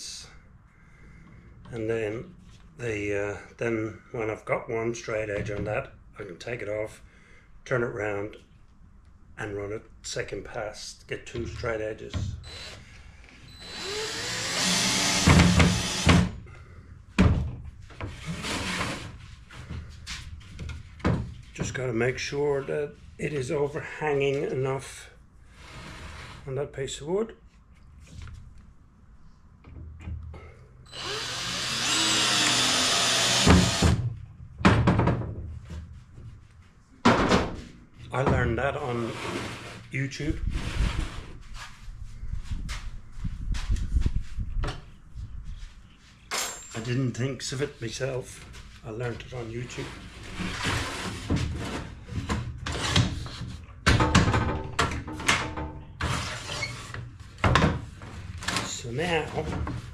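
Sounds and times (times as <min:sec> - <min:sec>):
cordless drill driving screw: 0:12.4 - 0:12.8, 0:13.5 - 0:16.3, 0:30.9 - 0:34.0.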